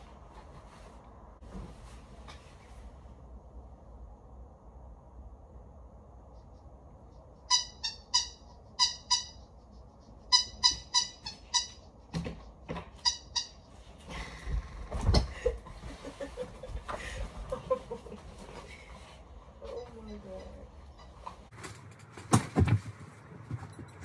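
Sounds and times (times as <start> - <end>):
bedding rustling: 0.0 - 3.2
squeaky dog toy squeaking: 7.5 - 9.6, 10.2 - 12.0, 12.9 - 13.7.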